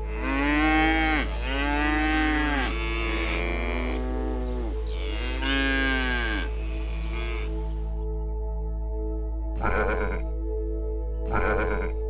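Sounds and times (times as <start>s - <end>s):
animal calling: 0.0s - 7.8s, 11.3s - 12.0s.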